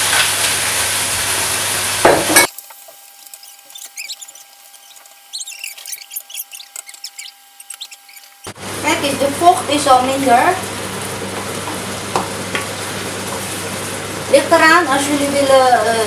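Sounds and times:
stir-fry sizzling in a wok: 0.0s - 3.3s, 8.4s - 16.0s
wooden spatula scraping: 2.5s - 8.5s.

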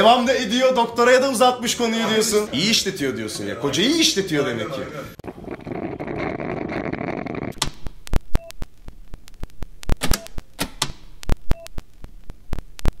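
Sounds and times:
sharp clicks: 7.5s - 13.0s.

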